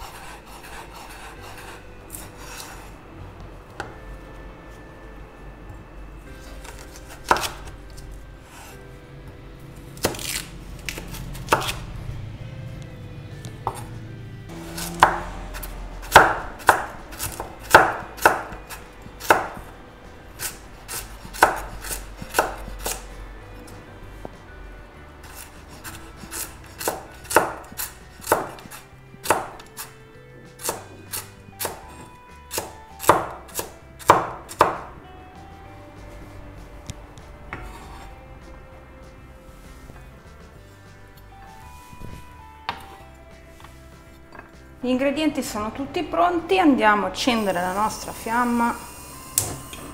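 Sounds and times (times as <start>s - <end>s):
knife chopping on wooden board: 6.6s - 7.7s, 10.0s - 11.8s, 13.6s - 13.9s, 14.7s - 19.7s, 20.4s - 23.0s, 25.2s - 29.9s, 30.6s - 34.9s.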